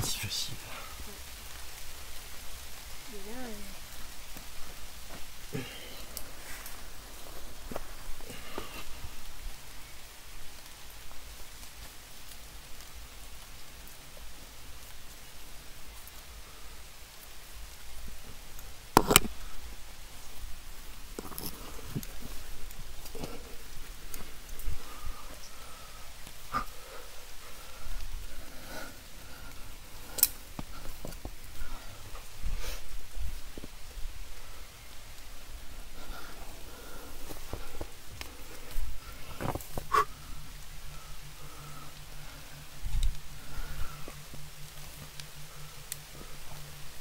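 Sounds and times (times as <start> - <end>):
rain on leaves and rock: 0.0 - 47.0
person breathing hard: 24.7 - 32.9, 35.8 - 44.6
faint clicks: 29.4 - 32.3
sniffing: 39.8 - 40.2.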